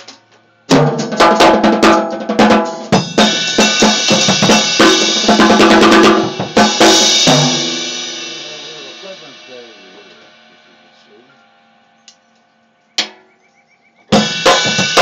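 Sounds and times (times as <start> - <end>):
drum kit played with sticks: 0.0 - 11.8, 14.0 - 15.0
cymbals ringing: 3.0 - 11.9.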